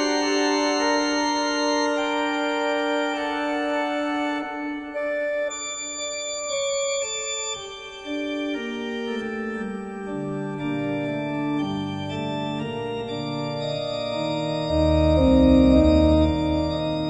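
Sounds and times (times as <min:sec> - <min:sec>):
church organ chords: 0:00.0 - 0:17.0.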